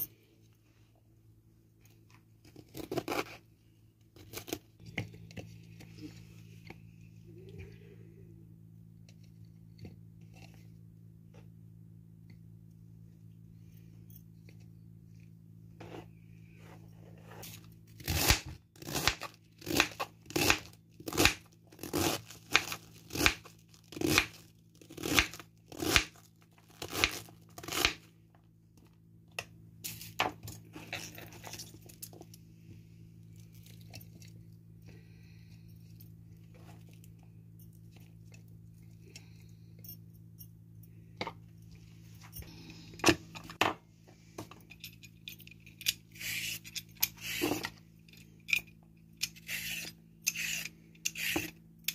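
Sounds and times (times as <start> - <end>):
scraping chopped onion: 49.3 - 51.5.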